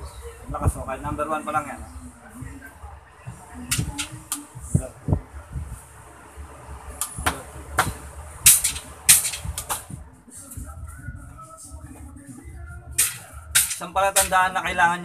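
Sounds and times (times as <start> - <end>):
handling clicks and knocks: 7.0 - 10.0.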